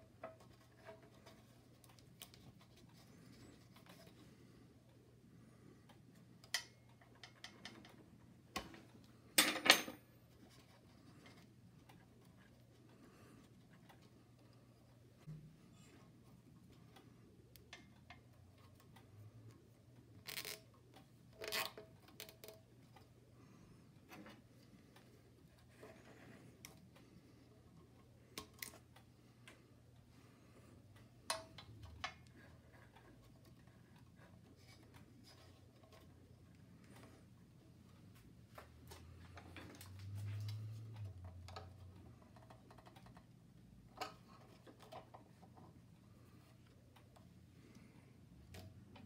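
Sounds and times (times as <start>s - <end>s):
low steady hum: 0.0s - 49.0s
rubber belt scraping: 20.2s - 20.6s, 21.4s - 22.3s.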